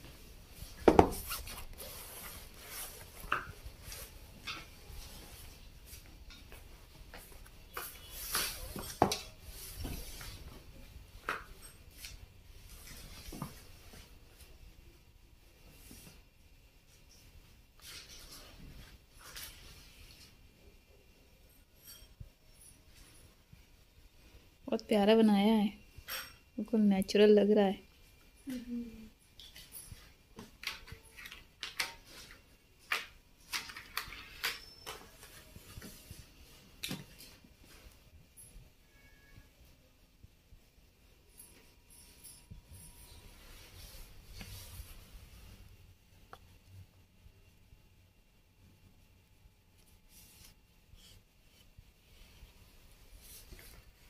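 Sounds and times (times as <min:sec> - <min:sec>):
paper rustling: 0:30.6 - 0:36.1.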